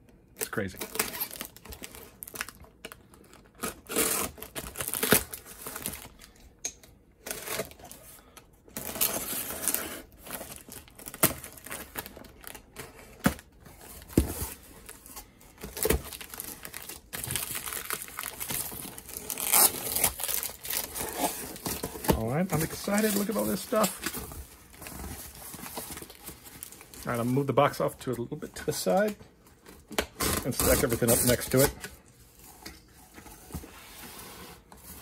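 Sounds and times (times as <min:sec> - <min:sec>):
tape and paper tearing: 0:03.6 - 0:05.8, 0:17.7 - 0:21.9.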